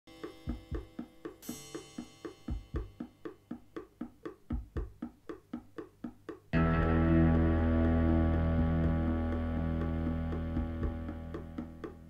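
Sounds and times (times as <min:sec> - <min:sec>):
deep drum thumps: 0:02.4 - 0:06.9, 0:07.8 - 0:12.0.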